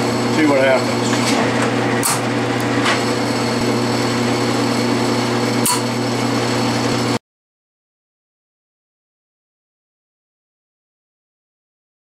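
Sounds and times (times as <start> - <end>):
lathe gears whining: 0.0 - 7.2.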